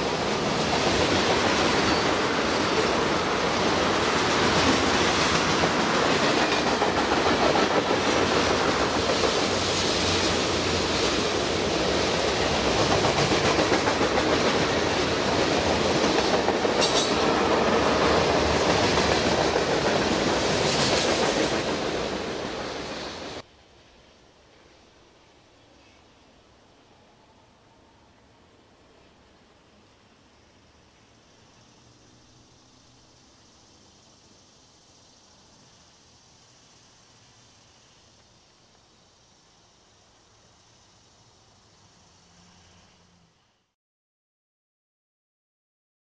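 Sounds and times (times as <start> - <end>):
steel wheels on rails: 0.0 - 23.4
clacking over rail joints: 12.4 - 21.9.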